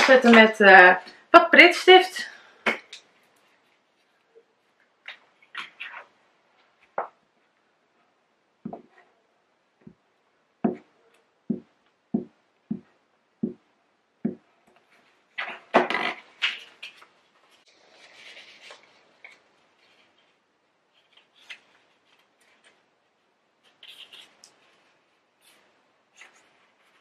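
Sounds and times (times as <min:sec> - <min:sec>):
paper rustling and crackling: 0:16.3 - 0:22.9.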